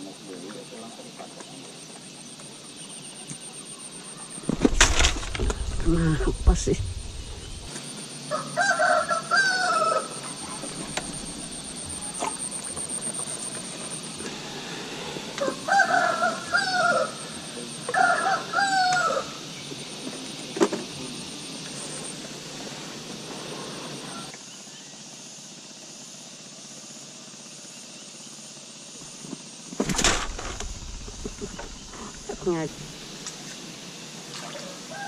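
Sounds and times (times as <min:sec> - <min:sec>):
steady high whine: 0:01.8 - 0:08.3, 0:10.1 - 0:15.7, 0:29.0 - 0:34.0
rooster crowing: 0:08.2 - 0:10.5, 0:15.4 - 0:19.4, 0:34.6 - 0:35.0.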